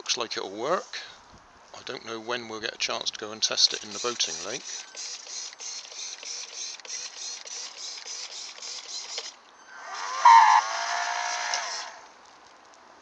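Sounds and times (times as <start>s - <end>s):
fan motor whirring: 9.7s - 12.1s.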